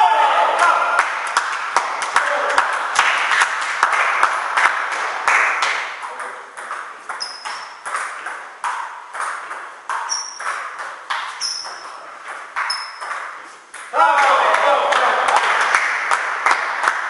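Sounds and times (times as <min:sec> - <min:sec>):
table tennis ball clicking: 0:06.2 - 0:11.8.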